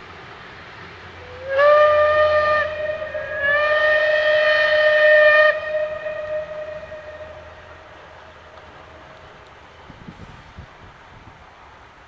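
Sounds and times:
steam locomotive whistle: 0:01.2 - 0:08.0.

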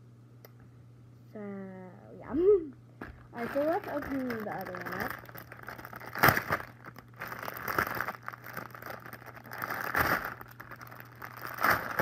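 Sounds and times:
plastic packaging crinkling: 0:03.4 - 0:12.0.

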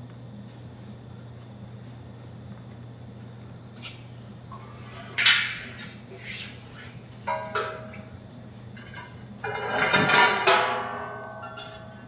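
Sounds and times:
metal clanks and clinks: 0:07.3 - 0:08.2, 0:08.8 - 0:12.0.

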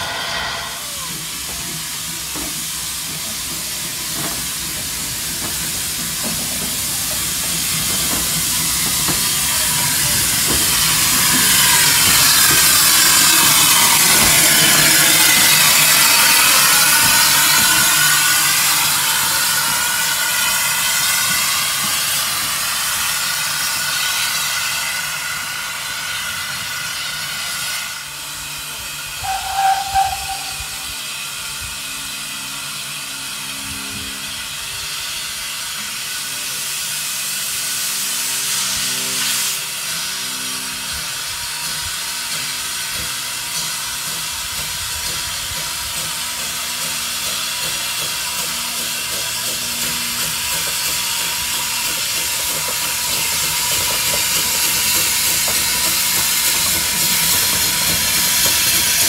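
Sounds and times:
high steam whistle toot: 0:00.0 - 0:01.7, 0:29.1 - 0:31.3
steam locomotive hissing: 0:00.0 - 0:59.0.

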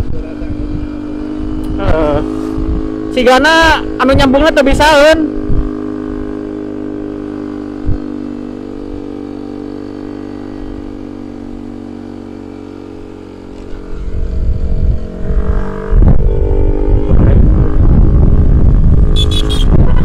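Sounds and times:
wind buffeting microphone: 0:00.0 - 0:03.2, 0:05.2 - 0:09.2, 0:13.0 - 0:20.0
scooter engine running: 0:00.0 - 0:20.0.

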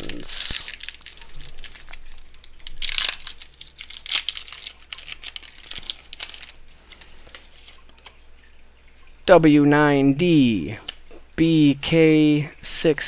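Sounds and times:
foil wrapper crinkling and tearing: 0:00.0 - 0:08.2.

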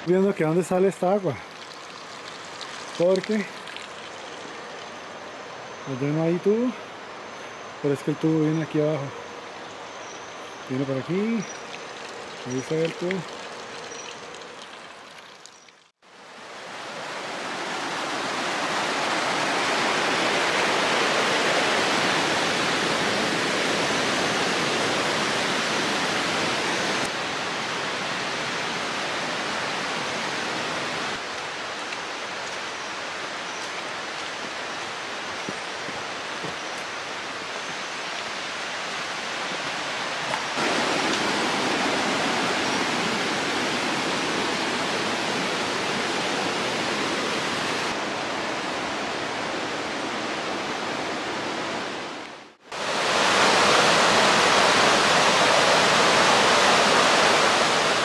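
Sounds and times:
river rushing over rocks: 0:16.1 - 0:58.0.

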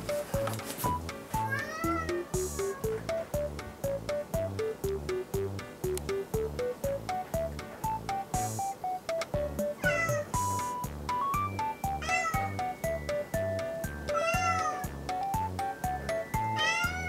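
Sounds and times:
background music with steady beat: 0:00.0 - 0:17.0
cat meowing: 0:01.5 - 0:02.9, 0:09.8 - 0:10.3, 0:12.0 - 0:12.6, 0:14.1 - 0:14.9, 0:16.6 - 0:17.0.

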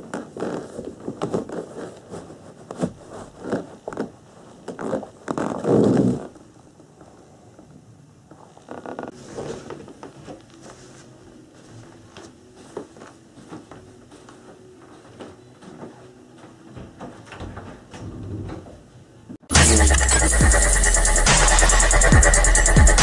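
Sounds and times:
footsteps in sneakers: 0:09.6 - 0:17.4
loud electronic music: 0:19.5 - 0:23.0.

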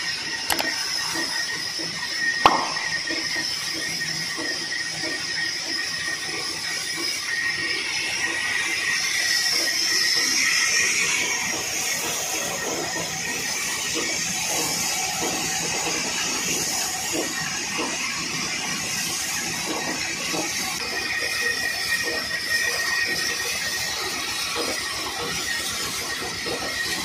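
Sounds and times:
band sawmill running: 0:00.0 - 0:27.0
sharp knock: 0:02.5 - 0:03.0.

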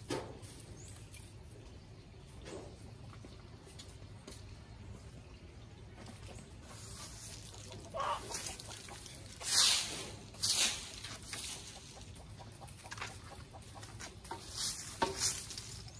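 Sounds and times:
chickens clucking softly: 0:04.8 - 0:09.5, 0:11.4 - 0:14.6
rustling in dry leaves: 0:06.0 - 0:15.9.

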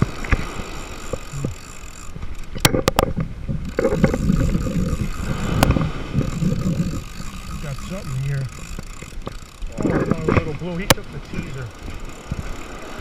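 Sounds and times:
fishing reel clicks: 0:00.0 - 0:03.0, 0:03.6 - 0:13.0
wind on microphone: 0:00.0 - 0:13.0
breaking surf: 0:03.8 - 0:08.3.

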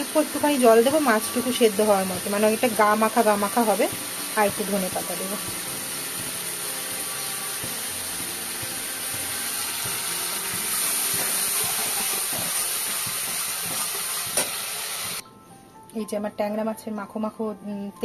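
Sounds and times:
gravy sizzling on stove: 0:00.0 - 0:15.2.

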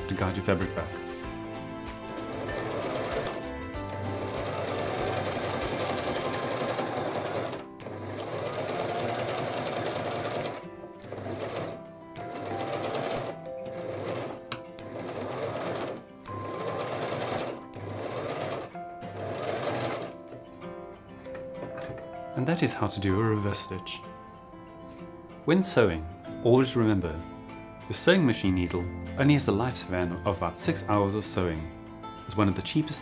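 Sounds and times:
electric sewing machine running: 0:02.1 - 0:20.3.

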